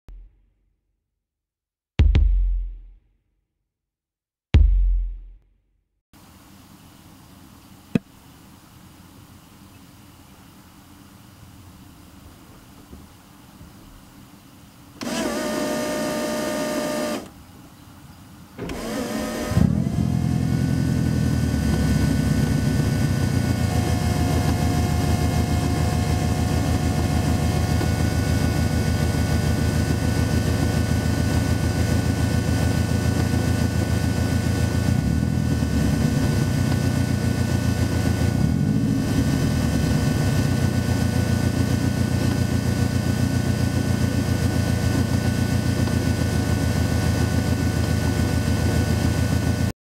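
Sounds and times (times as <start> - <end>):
car engine cranking and starting: 15.0 - 17.3, 18.6 - 49.7
electric fuel pump whining: 15.0 - 17.4, 18.6 - 49.7
car engine idling: 18.6 - 49.6.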